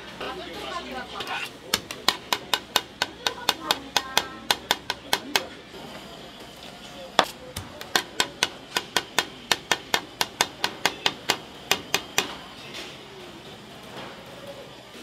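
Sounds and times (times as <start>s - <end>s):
knife chopping on a board: 1.7s - 5.5s.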